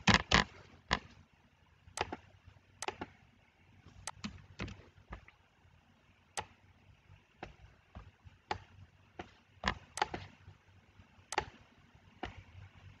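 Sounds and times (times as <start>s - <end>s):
faint low hum: 0.0s - 13.0s
computer mouse clicking: 2.0s - 2.2s, 2.8s - 3.1s, 4.0s - 4.8s, 9.6s - 10.4s, 11.3s - 11.6s.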